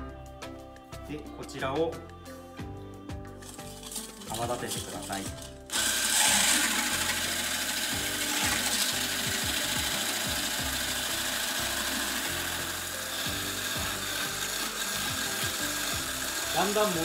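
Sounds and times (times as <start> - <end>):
whisk scraping steel bowl: 3.4 - 17.0
electric whisk whipping cream: 4.2 - 17.0.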